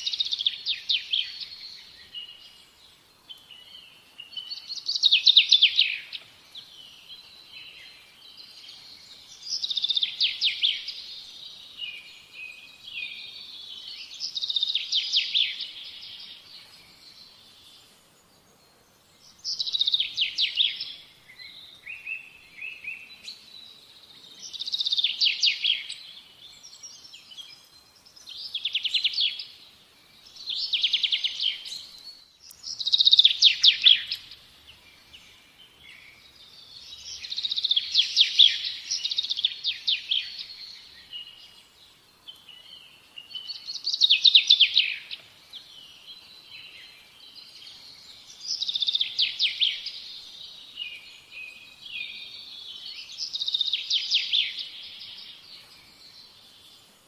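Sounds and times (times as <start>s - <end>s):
songbird trilling: 30.4s - 34.4s, 43.2s - 45.2s
whistled bird notes: 42.3s - 56.8s.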